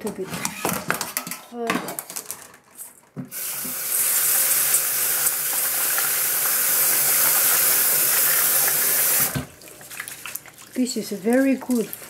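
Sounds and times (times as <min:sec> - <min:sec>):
rice being rinsed by hand: 0:03.3 - 0:12.0.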